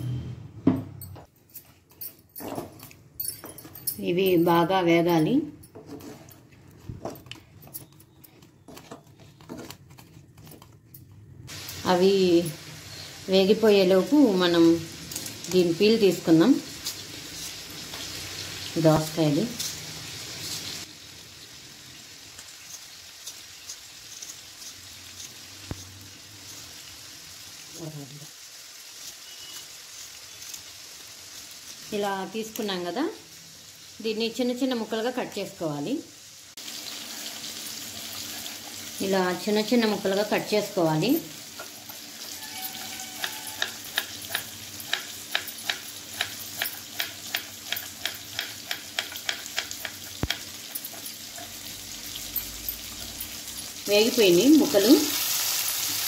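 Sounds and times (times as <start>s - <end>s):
vegetables sizzling in oil: 11.5s - 56.0s.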